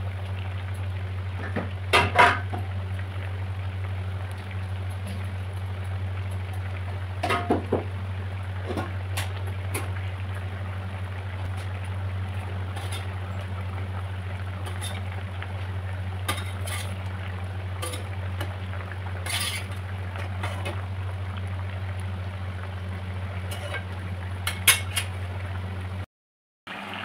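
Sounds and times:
curry bubbling in a pan: 0.0s - 26.0s
steady low hum: 0.0s - 26.0s
metal spatula scraping a pan: 16.3s - 17.0s, 19.2s - 19.8s.

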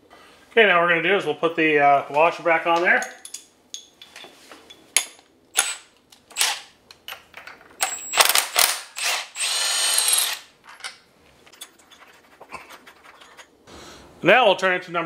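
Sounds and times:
cordless power tool whirring: 8.1s - 10.4s.

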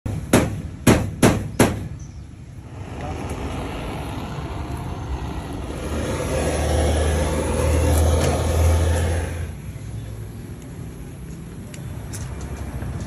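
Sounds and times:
sharp knocks: 0.1s - 2.0s
blowtorch hissing: 2.6s - 9.6s.

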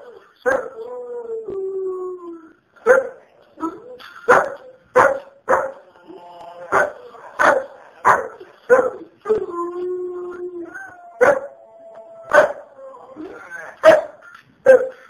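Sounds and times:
dog barking: 2.8s - 3.2s, 4.3s - 5.8s, 6.7s - 9.0s, 11.2s - 11.5s, 12.3s - 12.6s, 13.8s - 15.0s
dog howling: 6.0s - 8.1s, 9.2s - 13.5s.

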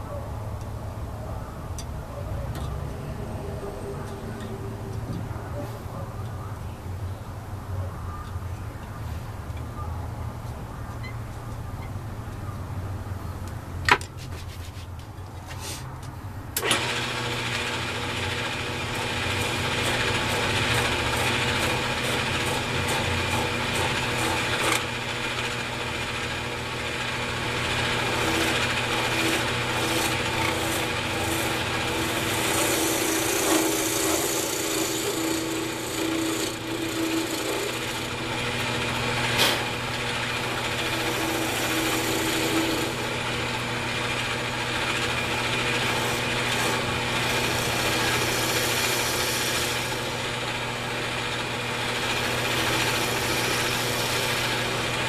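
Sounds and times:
chisel scraping spinning wood: 16.6s - 55.0s
wood lathe humming: 16.6s - 55.0s.

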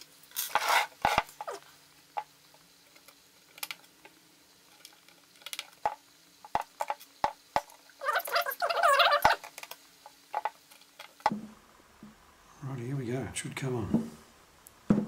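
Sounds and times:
rubbing squeak: 0.4s - 1.6s, 8.0s - 9.4s.

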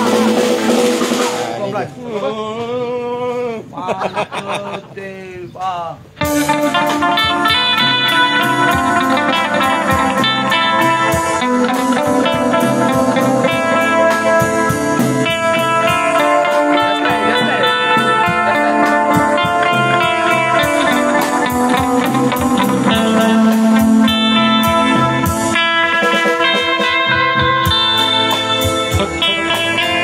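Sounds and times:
drum kit steady beat: 0.0s - 1.8s, 6.0s - 30.0s
amplified electric guitar: 0.0s - 2.1s, 6.1s - 30.0s
sustained chords: 6.2s - 30.0s.

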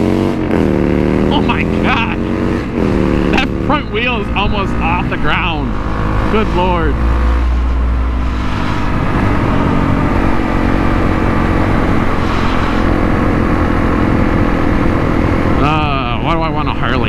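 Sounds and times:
motorcycle engine running: 0.0s - 17.0s
wind rush over microphone: 6.9s - 15.6s.

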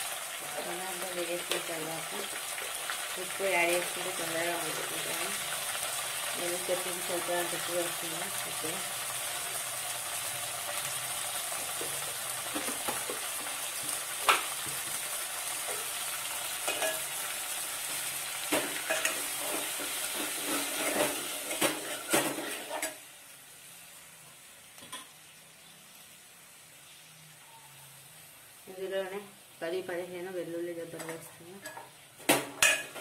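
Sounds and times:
vegetables sizzling in oil: 0.0s - 33.0s
steel spoon clinking on pot: 16.6s - 17.1s.

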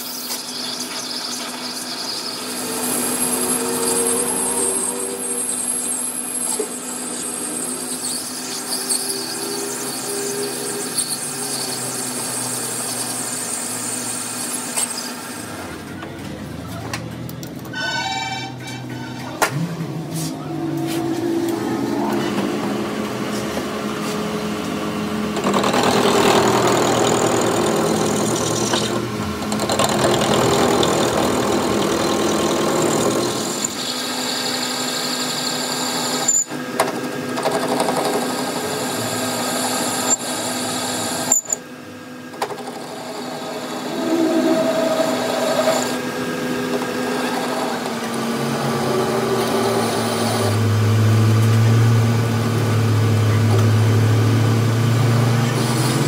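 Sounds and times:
metal lathe running: 0.0s - 16.0s, 17.6s - 56.0s
deeper hum: 2.4s - 6.6s, 17.6s - 25.4s.

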